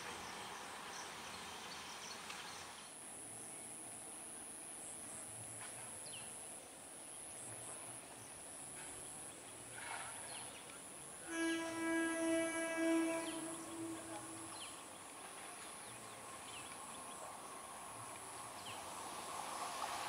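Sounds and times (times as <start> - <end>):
background hiss: 0.0 - 20.0
high insect drone: 11.2 - 16.6.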